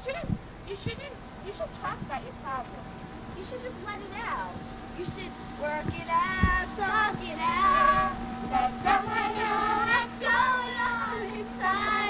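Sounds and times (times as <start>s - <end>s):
steady hum: 0.0s - 12.0s
children singing: 6.1s - 12.0s.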